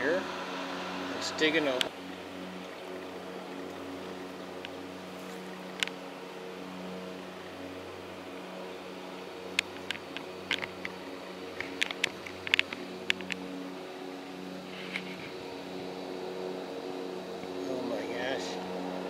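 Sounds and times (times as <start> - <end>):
low mechanical hum: 0.0 - 19.0
sharp clicks and ticks: 9.5 - 11.0, 11.6 - 13.5.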